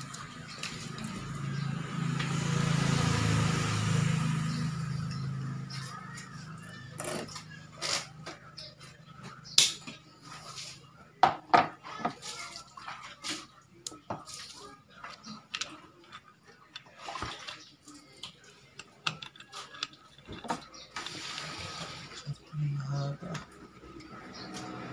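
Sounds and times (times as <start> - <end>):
small metal parts clicking and clattering: 18.7 - 21.2.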